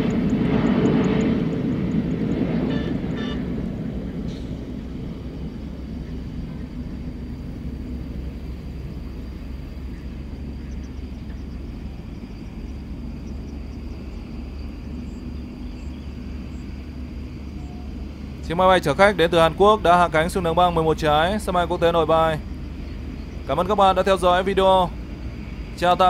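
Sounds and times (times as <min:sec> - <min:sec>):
faint high whine: 0:00.0 - 0:26.0
jet engines rumbling: 0:00.0 - 0:26.0.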